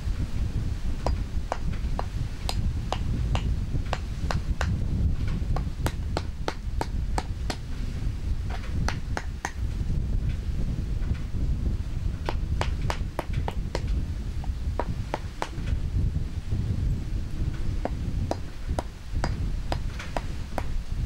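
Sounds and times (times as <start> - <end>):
hammer tapping metal on wood: 1.0 - 4.8, 5.6 - 7.6, 8.5 - 9.6, 12.3 - 15.6.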